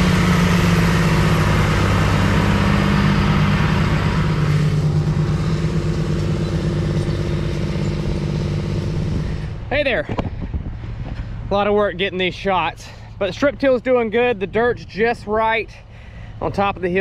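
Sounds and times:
rig rushing through soil: 0.0s - 9.6s
tractor diesel engine running: 0.0s - 17.0s.

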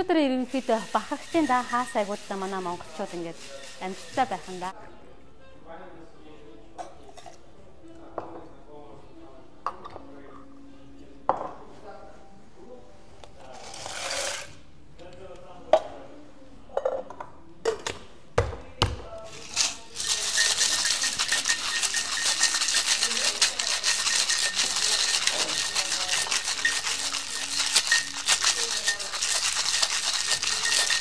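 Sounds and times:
ice rattling in cocktail shaker: 0.4s - 4.7s, 19.3s - 31.0s
glassware and utensils clinking: 19.3s - 31.0s.

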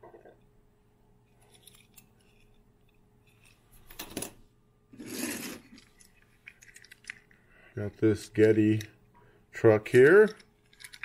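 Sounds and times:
metal toy cars clinking: 10.0s - 11.0s.

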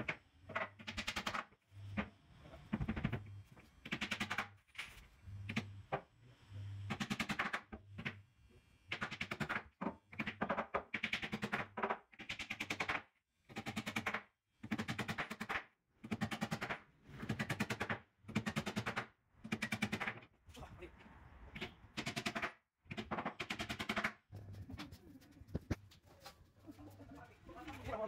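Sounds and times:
hammer driving nails: 0.0s - 2.1s, 2.7s - 4.6s, 6.9s - 8.2s, 8.9s - 20.3s, 21.6s - 24.2s.

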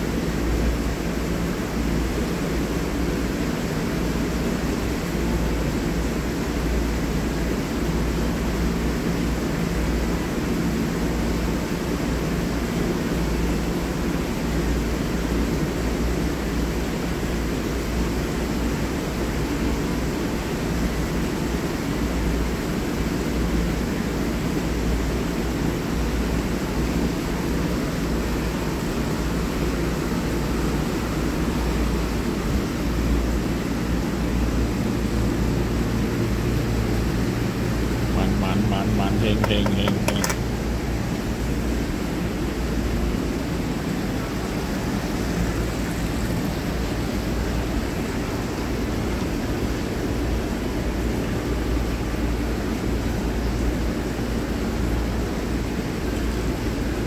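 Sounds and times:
ventilation fan humming: 0.0s - 57.0s
low hum: 33.4s - 48.2s.

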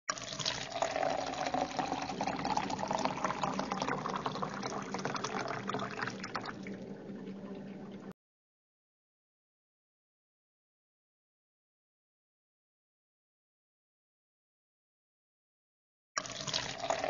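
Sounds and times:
water pouring into a glass: 0.1s - 8.1s, 16.2s - 17.0s.

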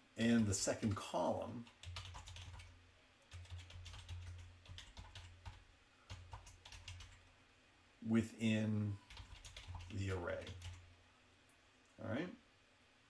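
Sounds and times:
typing on computer keyboard: 1.6s - 2.7s, 3.3s - 7.2s, 9.1s - 10.8s.

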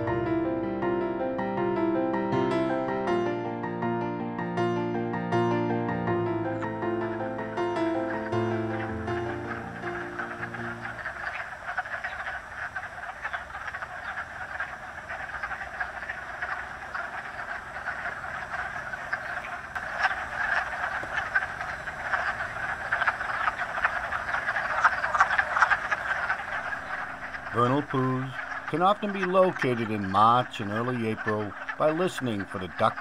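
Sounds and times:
frogs clucking chorus: 5.4s - 33.0s.

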